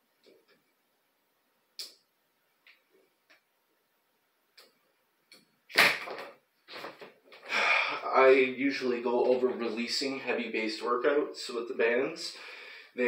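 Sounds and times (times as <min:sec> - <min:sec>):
resistance band slap: 0:05.7 - 0:06.9.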